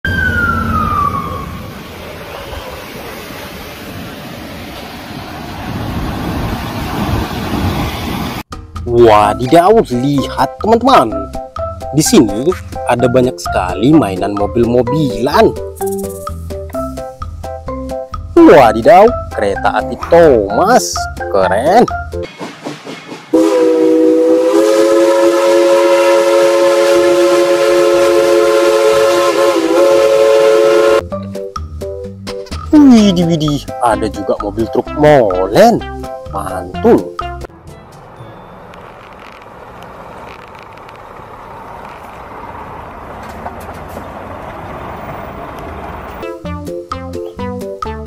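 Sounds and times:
steam locomotive whistle: 0.1s - 1.8s, 23.3s - 31.1s
truck diesel engine passing: 37.2s - 47.3s.

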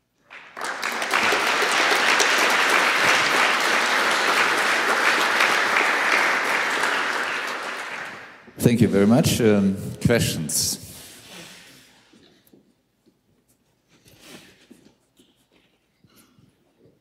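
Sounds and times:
audience applauding: 0.2s - 8.6s.

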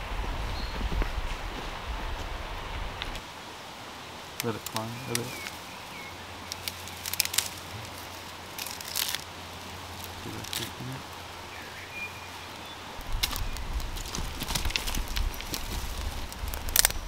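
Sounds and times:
quiet hiss: 0.0s - 17.0s
campfire crackling and popping: 4.2s - 17.0s.

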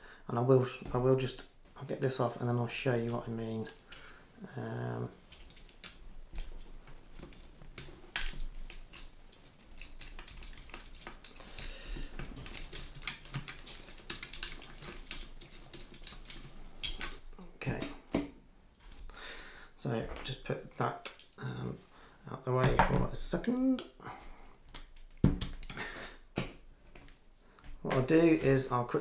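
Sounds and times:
metal parts clicking and scraping: 3.0s - 4.4s, 5.0s - 17.9s.

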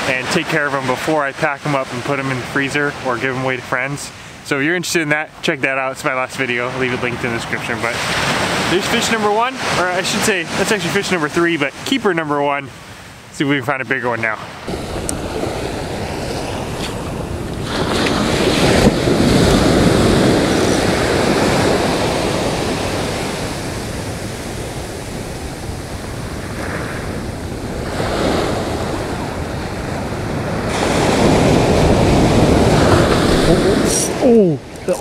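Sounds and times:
ocean surf on sandy beach: 0.0s - 35.0s
wind buffeting microphone: 14.6s - 35.0s.

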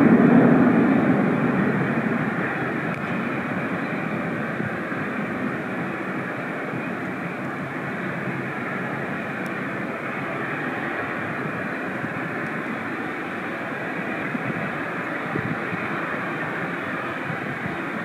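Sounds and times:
jet engines rushing: 0.0s - 18.0s.

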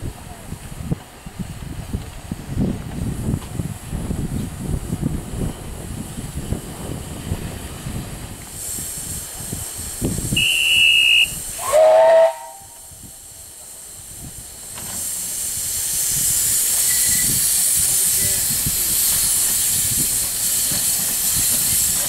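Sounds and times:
wind rumble on microphone: 0.0s - 11.6s, 15.4s - 22.0s
steam hissing: 2.4s - 22.0s
steam whistle blasts: 10.3s - 12.9s.

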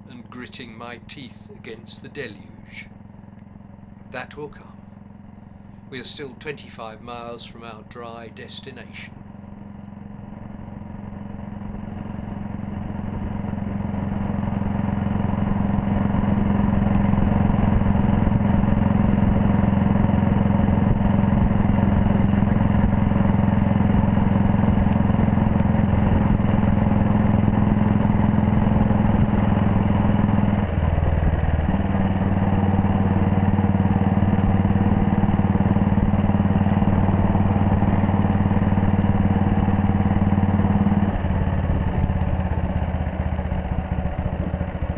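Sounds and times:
motorcycle engine running: 0.0s - 44.9s.

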